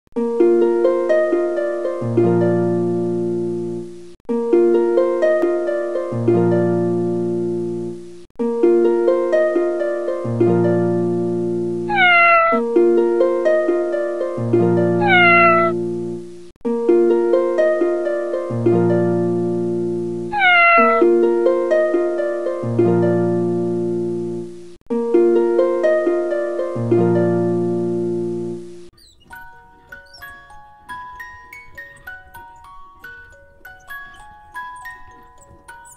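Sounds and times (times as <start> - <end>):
plucked harp-like background music: 0.2 - 3.5, 4.3 - 7.4, 8.5 - 11.8, 16.7 - 19.9, 25.0 - 28.6
cat meowing: 11.9 - 12.6, 15.0 - 15.8, 20.3 - 21.1, 29.0 - 35.9.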